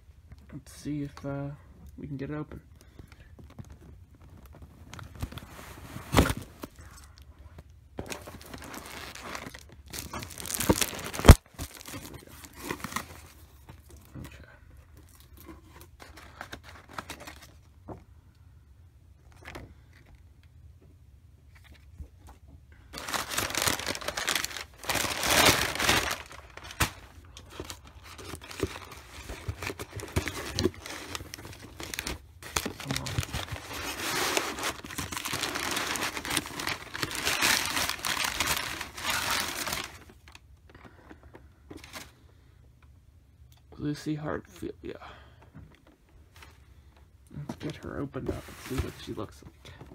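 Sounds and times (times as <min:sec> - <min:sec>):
packing paper crinkling: 0:08.0 - 0:14.0, 0:15.0 - 0:17.7, 0:22.9 - 0:40.4.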